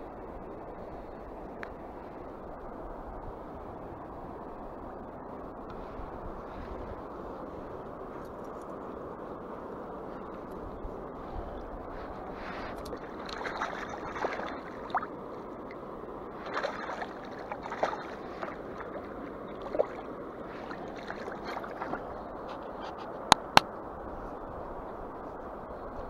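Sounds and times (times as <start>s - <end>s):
flowing river water: 0.0s - 26.0s
water sloshing and splashing: 11.9s - 23.1s.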